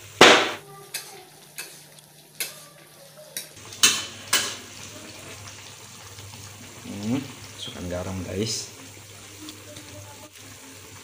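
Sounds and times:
faint bubbling of boiling liquid: 0.0s - 11.0s.

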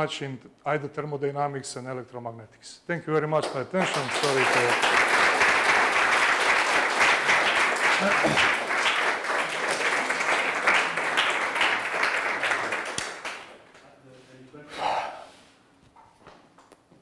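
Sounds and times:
audience applauding: 3.8s - 13.7s.

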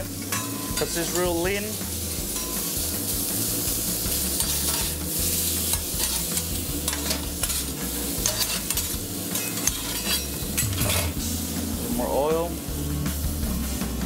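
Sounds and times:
food sizzling on a griddle: 0.0s - 14.0s
metal spatula scraping steel: 2.3s - 2.8s, 4.2s - 11.2s.

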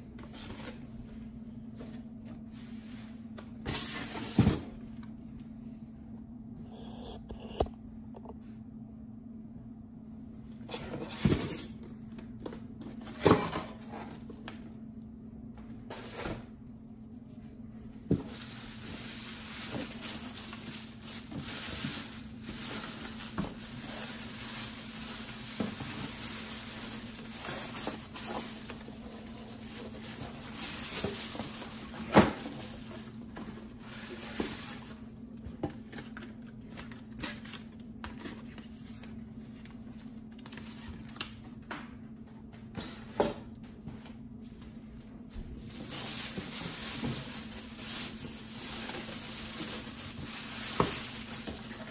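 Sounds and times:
steady low hum: 0.0s - 40.6s
plastic bag rustling and crinkling: 18.1s - 35.1s, 45.6s - 51.9s.

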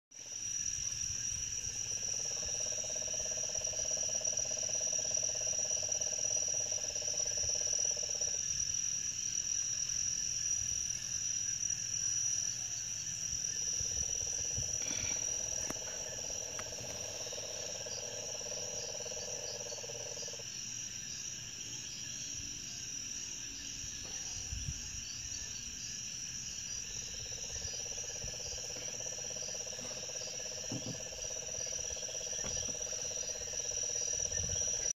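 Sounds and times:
high-pitched insect chorus: 0.2s - 34.9s
toad calling: 13.6s - 20.4s, 27.0s - 34.9s.

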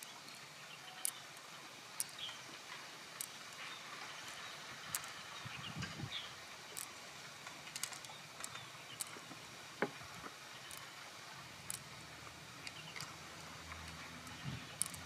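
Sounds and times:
gloved hands clicking and crinkling: 2.0s - 5.3s, 6.7s - 15.0s.

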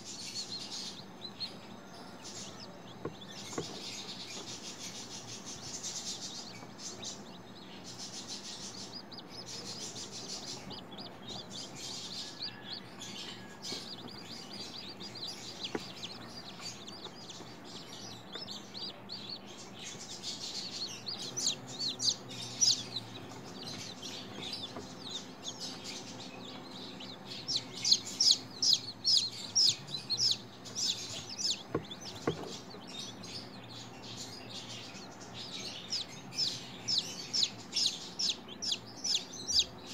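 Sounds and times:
chicks peeping: 0.0s - 39.9s
faint steady hum: 0.0s - 39.9s.

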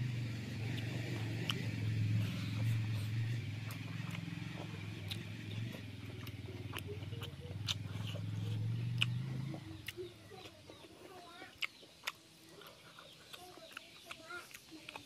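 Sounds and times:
low engine hum: 0.0s - 10.7s
person chewing wetly: 0.5s - 15.0s.

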